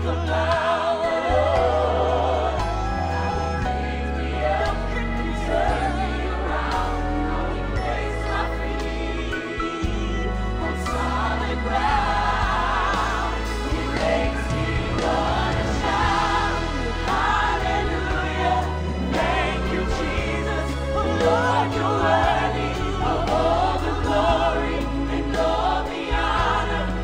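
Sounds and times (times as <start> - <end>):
deep bass line: 0.0 - 27.0
gospel choir singing: 0.0 - 27.0
instrumental backing: 0.0 - 27.0.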